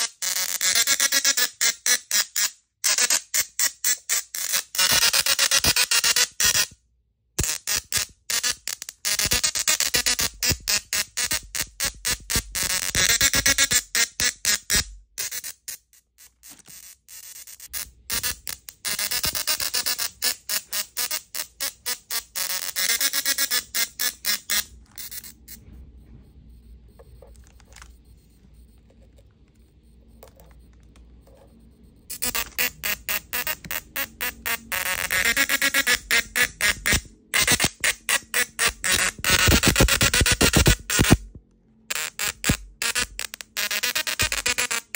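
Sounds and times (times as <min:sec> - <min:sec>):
musical tesla coil buzzing tune: 0:07.4 - 0:25.7, 0:31.5 - 0:44.9.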